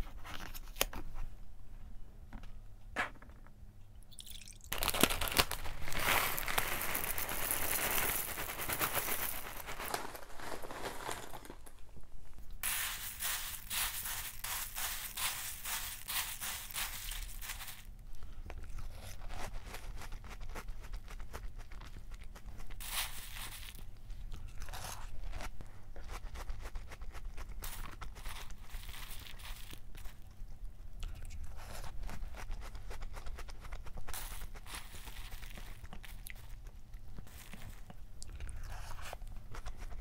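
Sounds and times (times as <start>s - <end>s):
food pouring into glass bowl: 4.1s - 10.0s
cereal crackling in milk: 4.1s - 40.0s
wooden spoon stirring: 12.6s - 17.8s.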